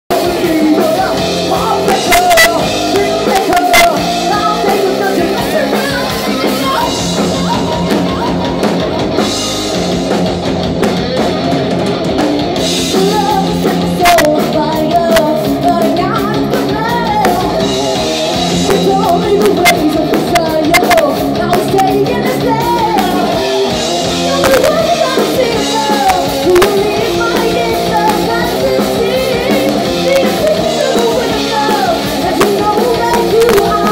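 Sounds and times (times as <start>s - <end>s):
woman singing lead: 0.1s - 9.9s, 11.2s - 33.9s
distorted electric guitars: 0.1s - 33.9s.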